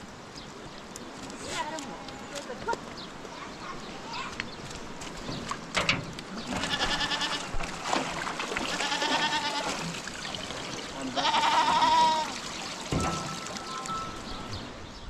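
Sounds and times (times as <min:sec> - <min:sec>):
sheep and goats bleating: 0:06.4 - 0:07.6, 0:08.7 - 0:09.8, 0:11.0 - 0:12.4.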